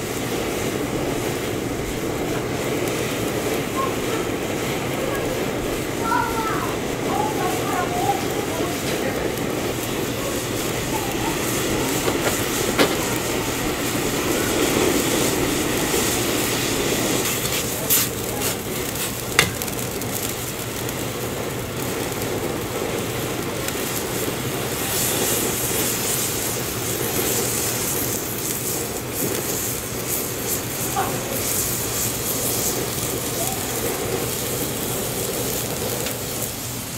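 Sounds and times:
broth boiling and bubbling: 0:00.0 - 0:36.9.

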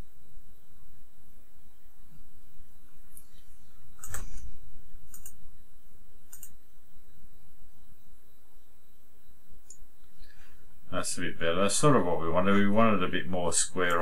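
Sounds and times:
computer mouse clicking: 0:04.0 - 0:04.4, 0:05.1 - 0:05.4, 0:06.3 - 0:06.6.

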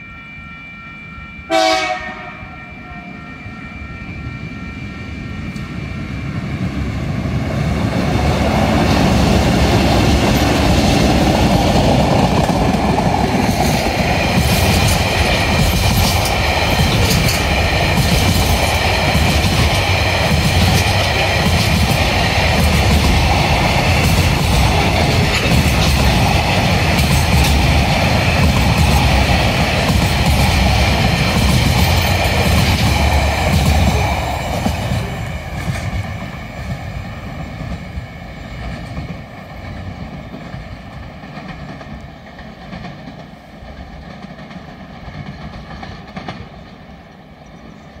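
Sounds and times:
freight train rolling past: 0:00.0 - 0:48.0
wheels clicking over rail joints: 0:10.2 - 0:38.0.

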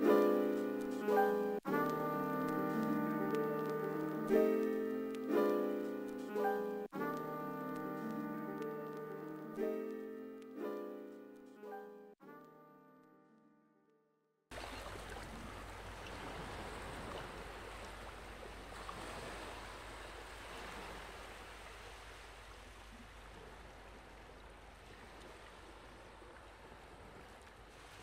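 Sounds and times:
background music: 0:00.0 - 0:13.6
rushing water noise: 0:14.5 - 0:28.0.

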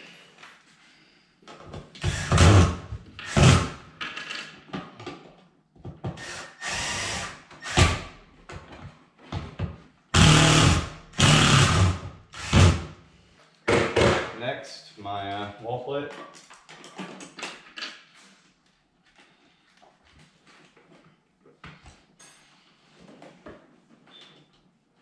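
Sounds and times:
cordless drill driving screws: 0:02.0 - 0:03.8, 0:06.2 - 0:08.1, 0:10.2 - 0:12.9.

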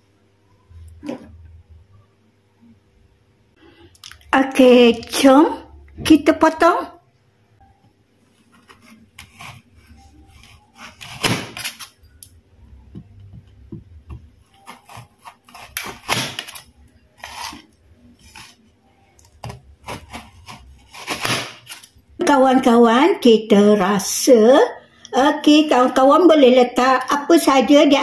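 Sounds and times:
knife crunching through biscuit cake: 0:14.5 - 0:16.6.

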